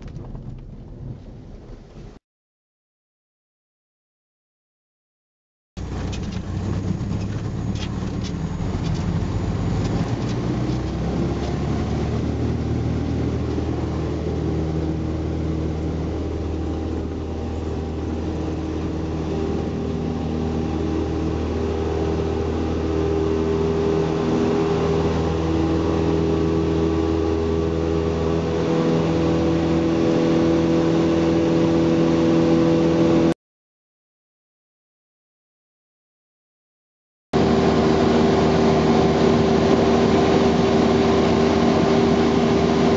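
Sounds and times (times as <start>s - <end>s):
light aircraft engine and propeller: 5.8s - 33.3s, 37.4s - 42.9s.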